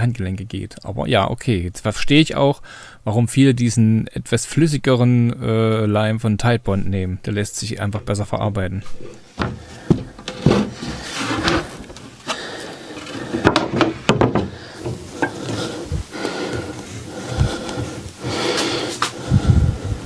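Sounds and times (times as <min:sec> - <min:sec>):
wooden stick scraping plywood: 0:08.9 - 0:19.2
wood knocking: 0:09.4 - 0:12.4, 0:13.0 - 0:16.8.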